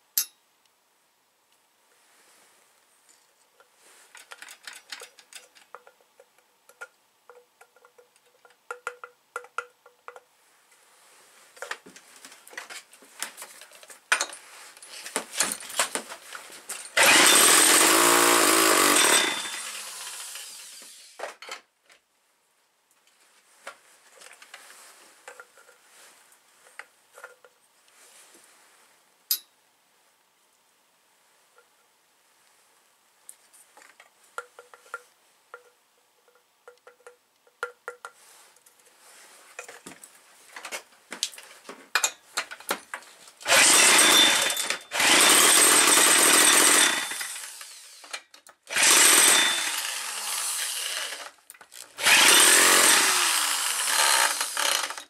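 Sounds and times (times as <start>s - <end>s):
handling clicks and clinks: 3.6s - 10.3s, 33.8s - 38.8s
chainsaw engine running: 17.0s - 20.7s, 43.4s - 47.9s, 48.7s - 51.3s, 52.0s - 55.0s.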